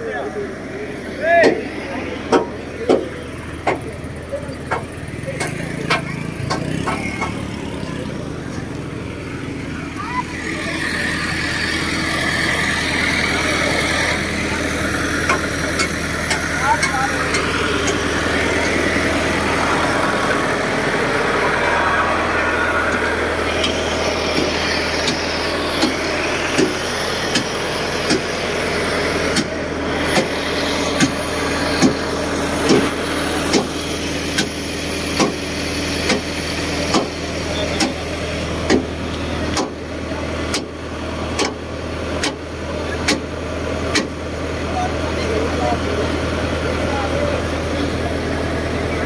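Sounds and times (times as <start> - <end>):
diesel engines running: 0.0 - 49.0
sharp knocking: 2.3 - 3.9.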